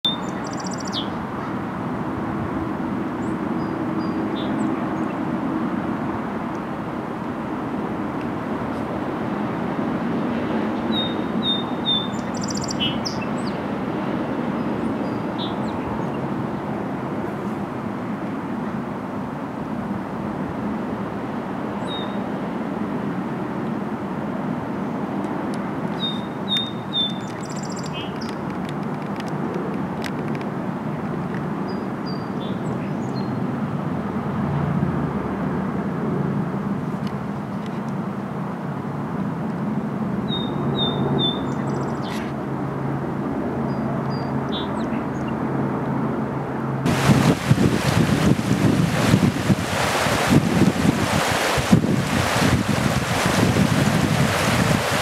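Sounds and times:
sparrow singing: 0.0s - 1.2s, 10.9s - 13.6s, 26.0s - 28.4s, 40.3s - 42.2s
mountain creek rushing: 46.9s - 55.0s.

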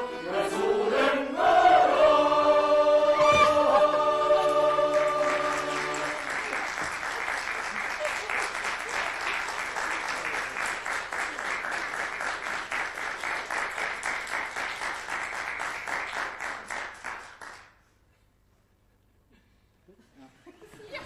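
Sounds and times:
audience applauding: 4.4s - 17.7s.

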